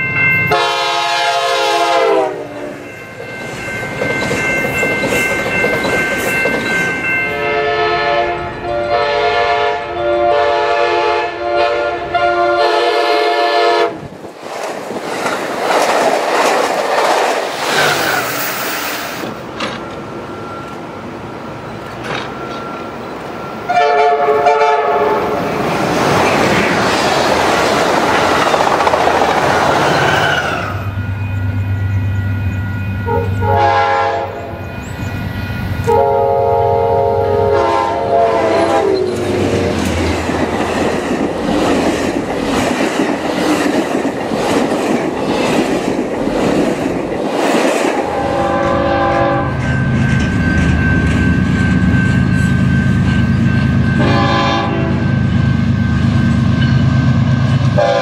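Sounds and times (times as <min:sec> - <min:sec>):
diesel locomotive drone: 0:00.0 - 0:58.0
railcars rushing past: 0:00.0 - 0:58.0
train air horn blasts: 0:00.5 - 0:02.8, 0:07.4 - 0:14.0, 0:23.7 - 0:25.4, 0:33.0 - 0:34.7, 0:35.8 - 0:39.1, 0:48.0 - 0:49.6, 0:53.9 - 0:55.2, 0:57.7 - 0:58.0.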